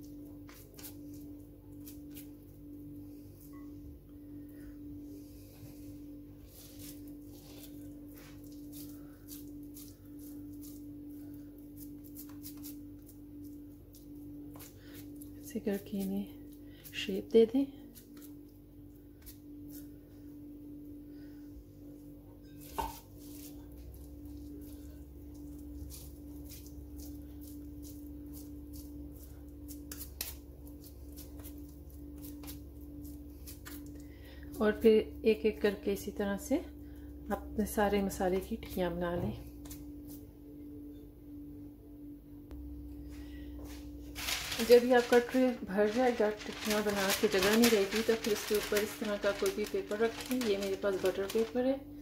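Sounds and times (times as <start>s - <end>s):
steady hum: 0.0s - 22.5s, 23.5s - 52.0s
hands squishing meat mixture: 6.5s - 16.9s, 23.1s - 34.6s.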